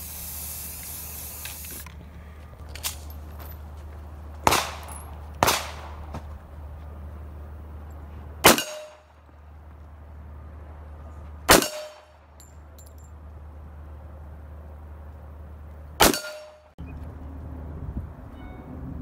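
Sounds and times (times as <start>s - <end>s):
pistol shots: 4.4s - 6.2s, 8.4s - 9.1s, 11.5s - 12.1s, 16.0s - 16.6s.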